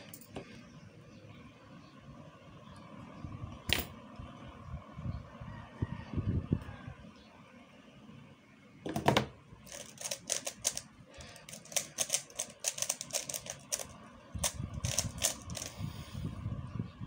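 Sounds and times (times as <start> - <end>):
puzzle cube clicking: 9.7 - 10.8, 11.4 - 15.7.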